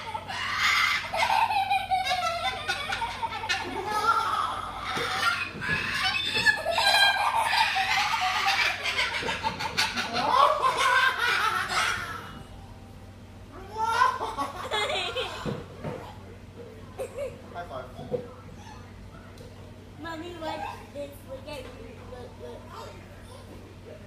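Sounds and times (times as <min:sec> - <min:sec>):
cockatoo calls and chatter: 0:00.0 - 0:12.4.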